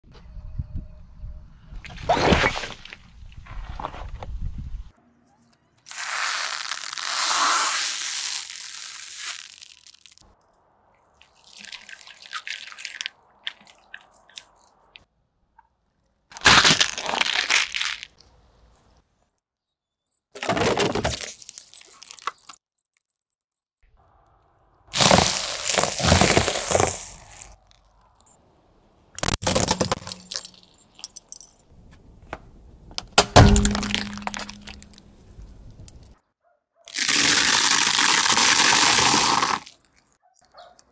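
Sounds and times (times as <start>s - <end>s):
plastic crackling under tyre: 5.8s - 10.4s
foil cups crunching under tyre: 5.9s - 10.2s, 16.3s - 18.2s, 24.9s - 27.9s, 36.9s - 40.2s
plastic cups crackling and splattering: 5.9s - 10.2s, 11.2s - 14.6s, 25.0s - 27.3s, 36.9s - 40.2s
plastic barrel cracking: 33.0s - 35.0s.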